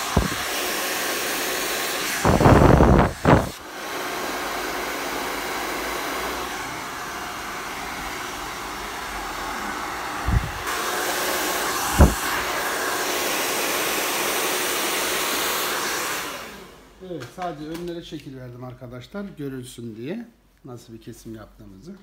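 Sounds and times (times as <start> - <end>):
hair dryer blowing: 0.0 - 17.0.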